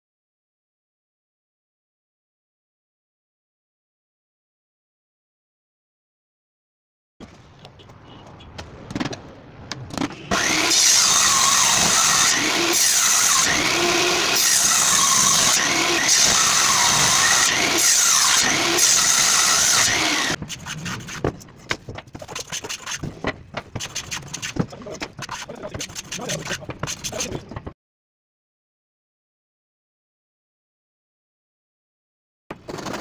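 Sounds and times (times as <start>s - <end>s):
table saw cutting wood: 10.2s - 21.2s
hand plane shaving a board: 22.0s - 23.1s, 23.7s - 27.4s.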